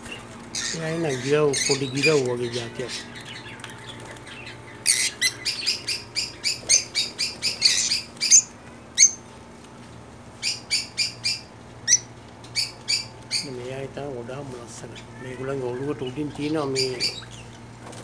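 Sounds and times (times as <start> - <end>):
small parrots chirping shrilly: 0.5 - 2.2, 4.3 - 9.2, 10.4 - 13.5, 16.7 - 17.4.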